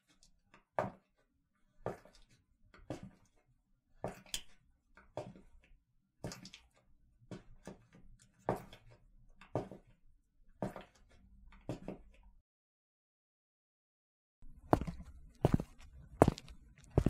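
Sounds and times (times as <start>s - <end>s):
footsteps walking: 14.7s - 17.0s.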